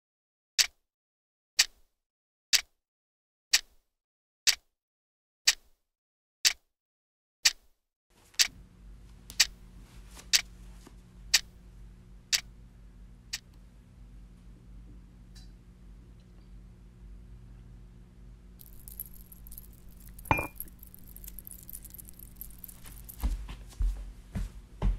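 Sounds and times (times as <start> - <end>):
low steady hum: 8.5 - 24.9.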